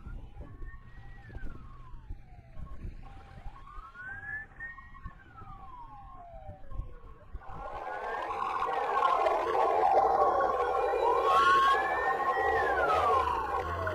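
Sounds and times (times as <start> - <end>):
siren wailing: 0.0 - 13.9
low rumble: 7.4 - 13.9
rush of noise: 7.4 - 13.9.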